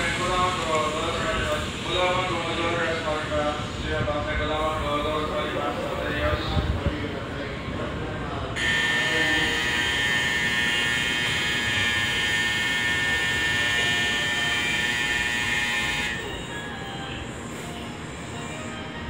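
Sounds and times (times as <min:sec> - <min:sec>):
platform departure bell ringing: 0:08.6 - 0:19.0.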